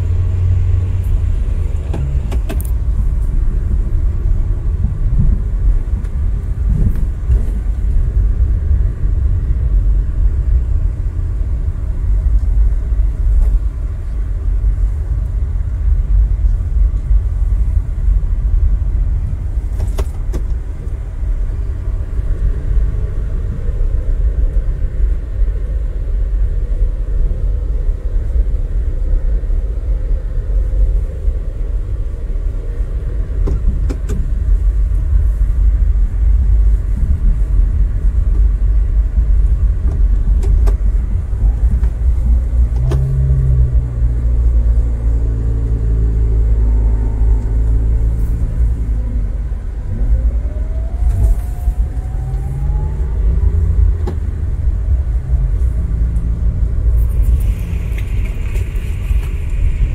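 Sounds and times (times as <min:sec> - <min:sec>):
car engine from inside cabin: 0:00.0 - 0:59.9
road rumble: 0:00.0 - 0:59.9
whine: 0:44.5 - 0:59.9.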